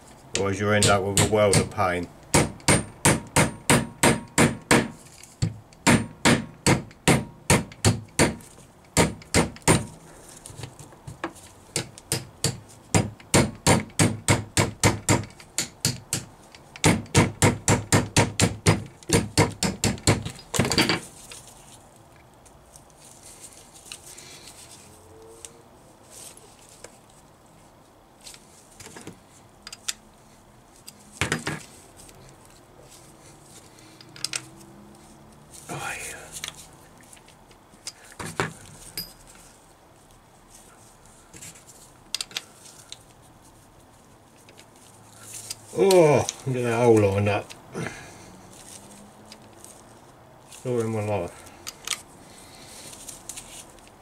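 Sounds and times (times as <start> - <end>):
hammer tapping on metal shaft: 0.4 - 5.0
faint clicks of parts handled: 20.3 - 24.8, 28.2 - 30.0, 30.7 - 34.6, 36.3 - 43.2, 44.3 - 47.6, 48.5 - 52.2, 52.8 - 54.0.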